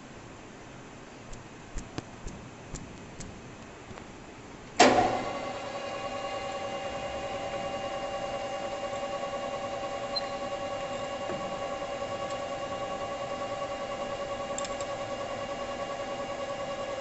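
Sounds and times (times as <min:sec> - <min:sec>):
lathe switch clicks: 0:04.8 - 0:05.3
lathe spindle clunk: 0:04.8 - 0:05.4
lathe running with steady hum: 0:04.8 - 0:17.0.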